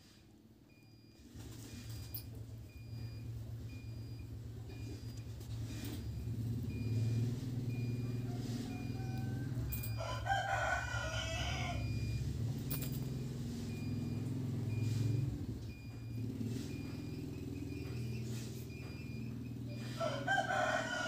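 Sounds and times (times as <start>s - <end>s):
rooster crowing: 7.9s - 12.3s, 19.8s - 21.0s.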